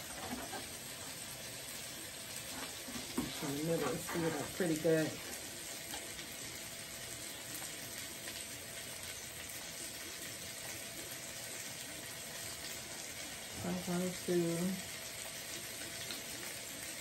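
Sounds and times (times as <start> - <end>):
chicken sizzling in frying pan: 0.0 - 17.0.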